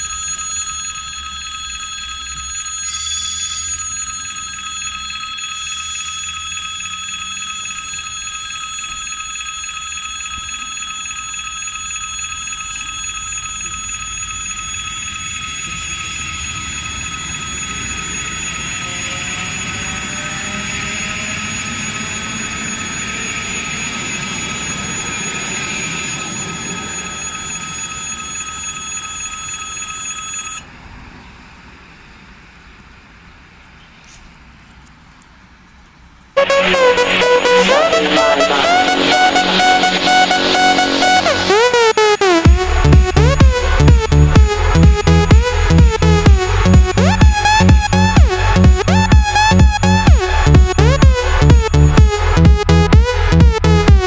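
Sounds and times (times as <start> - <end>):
electric train passing: 0.0 - 9.3, 11.3 - 28.8, 36.4 - 53.7
railway crossing bell ringing: 0.0 - 30.7.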